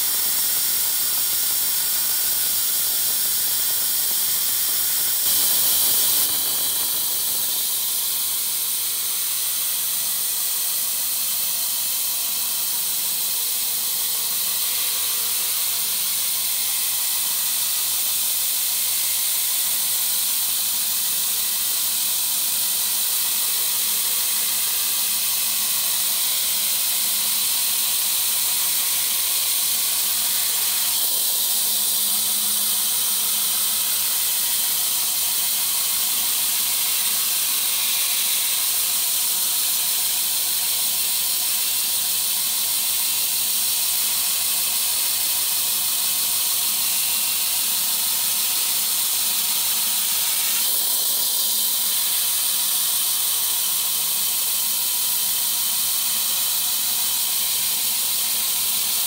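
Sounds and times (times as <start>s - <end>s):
saw blade cutting wood: 0.0s - 9.5s, 22.9s - 41.6s, 43.1s - 54.4s.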